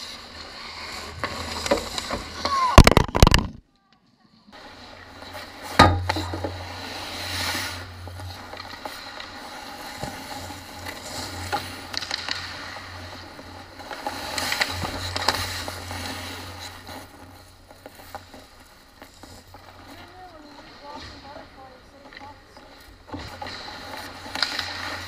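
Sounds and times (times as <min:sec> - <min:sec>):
sticks and puck clacking: 0:00.0 - 0:03.6, 0:05.2 - 0:25.0
skates scraping ice: 0:00.0 - 0:25.0.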